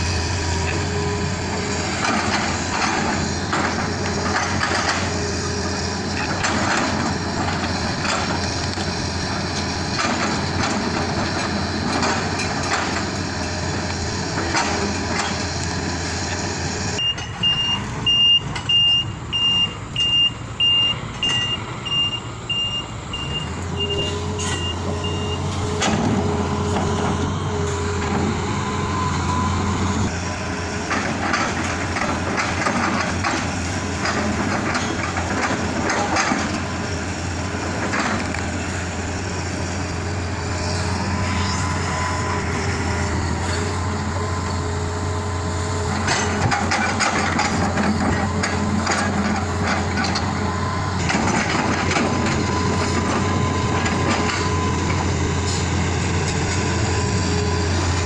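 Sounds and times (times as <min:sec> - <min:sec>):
excavator diesel engine running: 0:00.0 - 0:58.0
backup alarm beeping: 0:17.0 - 0:25.5.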